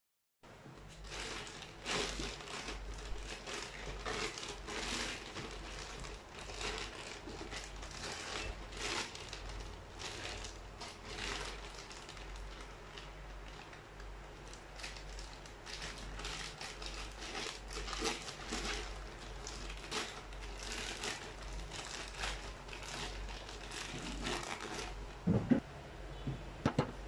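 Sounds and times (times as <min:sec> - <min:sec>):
plastic bag crinkling: 0:00.8 - 0:25.4.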